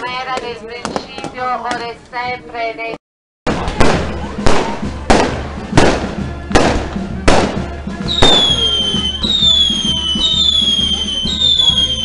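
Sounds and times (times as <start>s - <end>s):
fireworks banging: 3.5s - 12.0s
high whistle: 8.1s - 12.0s.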